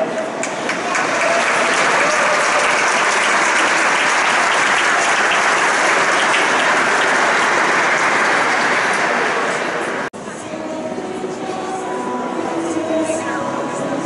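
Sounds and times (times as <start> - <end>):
audience applauding: 0.3 - 10.1.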